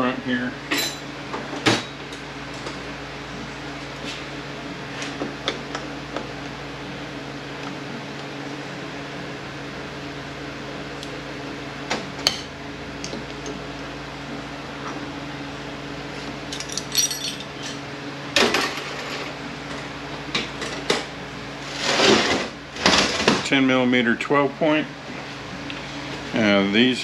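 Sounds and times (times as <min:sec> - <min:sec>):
steady low hum: 0:00.0 - 0:27.0
hand tools clanking on metal: 0:16.5 - 0:17.8.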